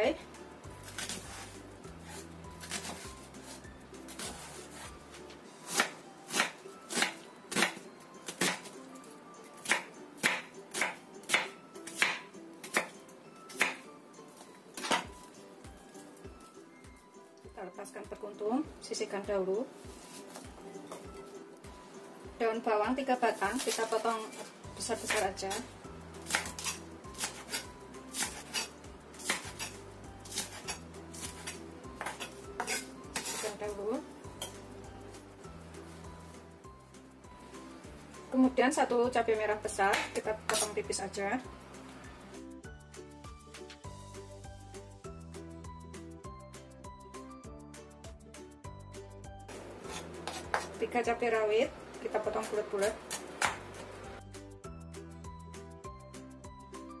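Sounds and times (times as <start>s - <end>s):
knife chopping on wooden board: 0.9s - 4.9s, 5.7s - 8.7s, 9.6s - 13.8s, 14.8s - 15.2s, 23.7s - 25.3s, 26.2s - 33.6s, 39.8s - 40.8s, 49.5s - 50.8s, 52.4s - 53.9s.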